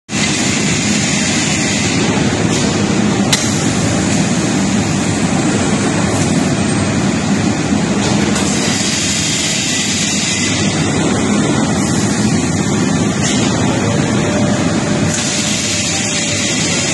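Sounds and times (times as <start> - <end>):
steady machinery noise: 0.1 - 16.9.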